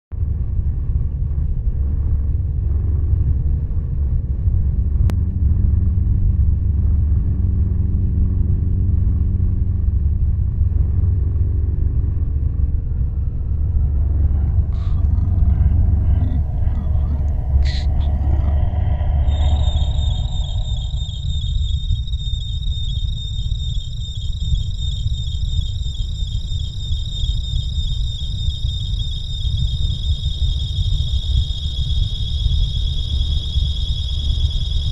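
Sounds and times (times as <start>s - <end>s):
low rumbling drone: 0.1s - 34.9s
faint held tones: 12.8s - 23.3s.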